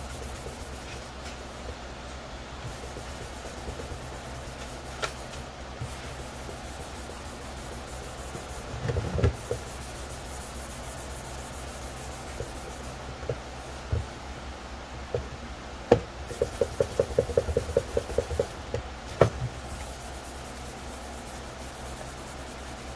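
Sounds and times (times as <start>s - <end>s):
sanding pad rubbing plastic: 0.0s - 1.1s, 2.7s - 8.7s, 16.3s - 18.6s, 19.8s - 22.9s.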